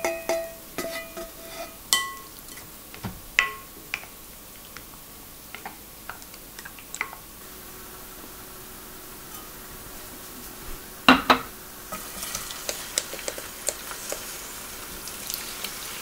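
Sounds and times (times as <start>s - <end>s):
faint steady hum: 0.0s - 16.0s
spoon clinking in glass bowl: 1.9s - 2.3s.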